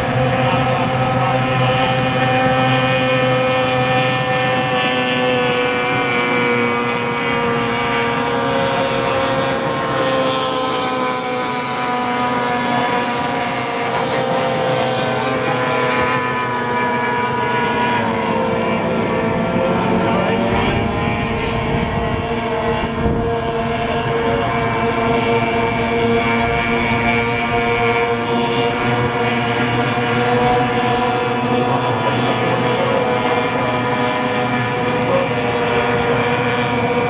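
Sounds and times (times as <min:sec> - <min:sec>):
outboard engine running flat out: 0:00.0 - 0:37.0.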